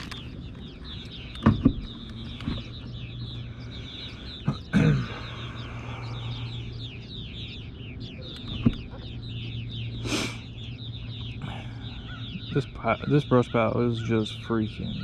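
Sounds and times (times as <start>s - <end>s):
low hum: 0.0s - 12.4s
birds chirping: 0.0s - 15.0s.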